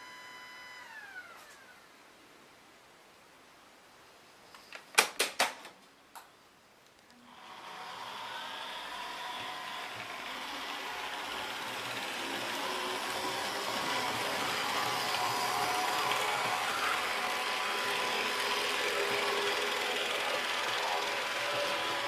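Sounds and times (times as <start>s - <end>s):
model train motors whirring: 0.0s - 1.9s, 7.3s - 22.0s
small fan running: 0.0s - 2.0s, 7.2s - 22.0s.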